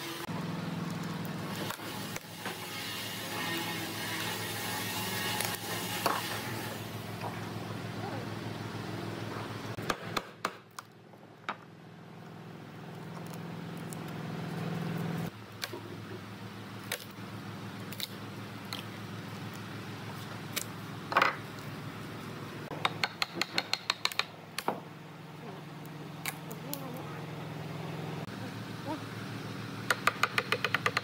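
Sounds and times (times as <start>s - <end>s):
chisel taps and clicks: 22.7s - 24.8s, 29.9s - 31.0s.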